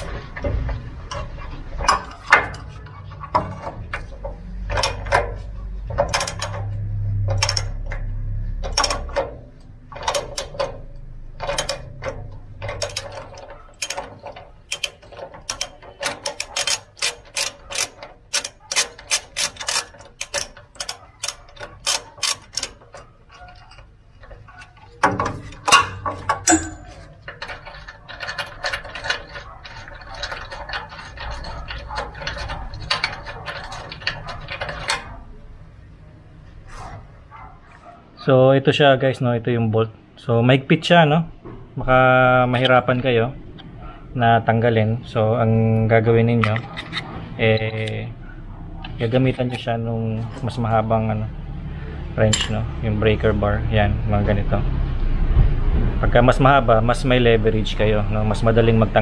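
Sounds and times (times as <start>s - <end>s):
ratchet wrench clicking: 6.1s - 9.3s, 11.4s - 23.8s.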